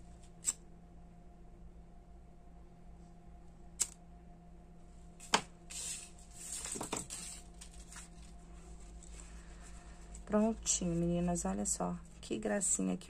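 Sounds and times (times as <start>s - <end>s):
ribbon rustling: 5.2s - 12.2s.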